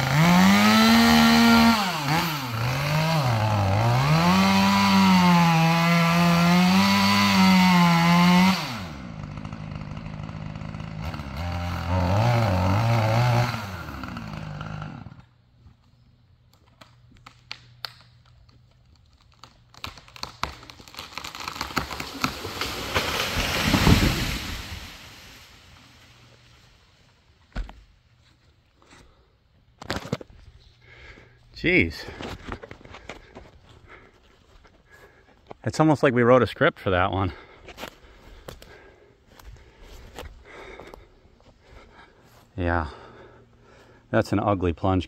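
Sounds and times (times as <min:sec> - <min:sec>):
chainsaw cutting wood: 0:00.0 - 0:15.4, 0:19.2 - 0:26.5
wood cracking: 0:14.0 - 0:26.4, 0:29.8 - 0:31.2, 0:32.1 - 0:35.6
tree crashing down: 0:19.3 - 0:26.3.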